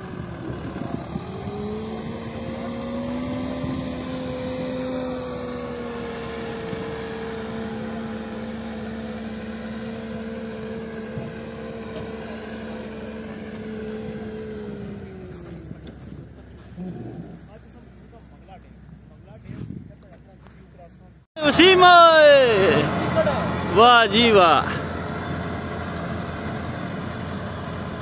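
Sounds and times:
tractor engine running: 0.0s - 28.0s.

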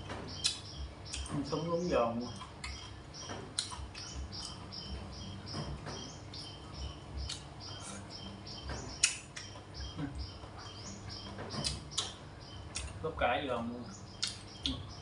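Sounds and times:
chewing crunchy vegetables: 2.2s - 5.0s, 5.7s - 10.8s, 14.1s - 14.9s.

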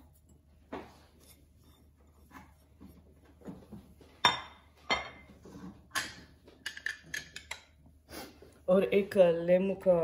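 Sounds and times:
soft taps and scrapes: 0.0s - 4.2s.

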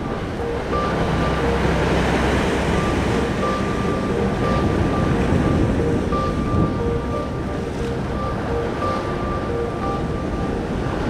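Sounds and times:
wind on microphone: 0.0s - 11.0s.

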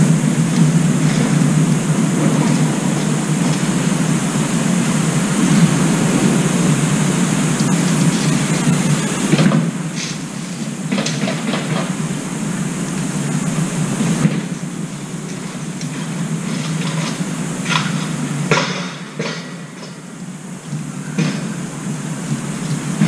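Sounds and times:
steady low rumble: 0.0s - 18.5s.

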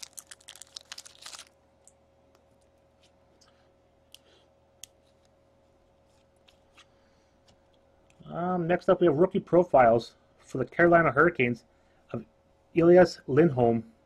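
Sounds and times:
foil wrapper crinkling: 0.0s - 1.9s.

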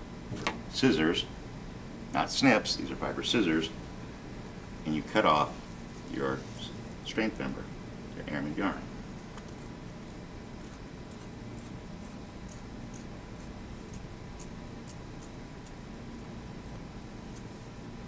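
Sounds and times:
scissors snipping: 9.4s - 15.8s.

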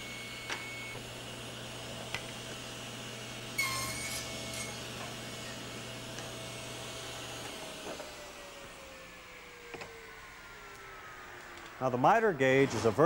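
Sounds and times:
table saw cutting wood: 0.0s - 10.1s
saw motor winding down whine: 0.0s - 12.3s.

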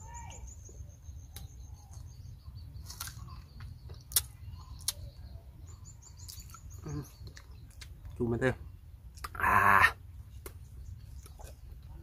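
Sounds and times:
bird chirping: 0.0s - 12.0s
crunchy pod being chewed: 2.8s - 5.3s, 6.1s - 8.2s, 9.1s - 9.4s, 10.3s - 12.0s.

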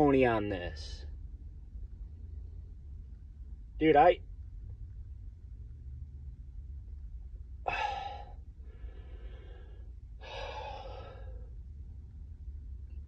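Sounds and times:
low hum in car cabin: 0.0s - 13.0s
man breathing: 7.6s - 11.7s.

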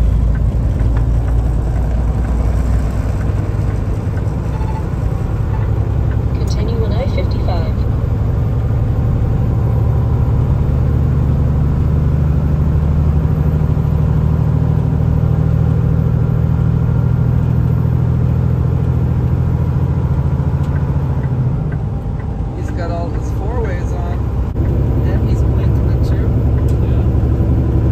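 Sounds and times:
tyre noise on wet road: 0.0s - 6.1s
diesel truck engine droning: 0.0s - 27.9s.

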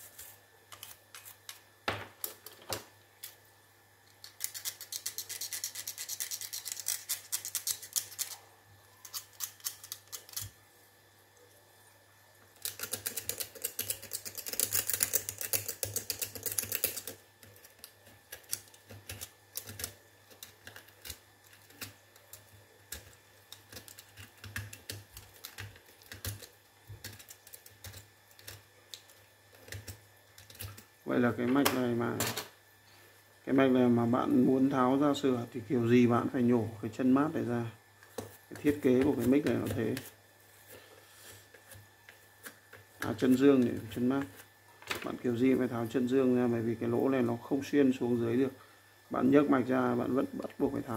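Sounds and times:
hand tool scratching metal contacts: 4.3s - 8.4s, 9.0s - 10.5s, 12.6s - 17.8s.

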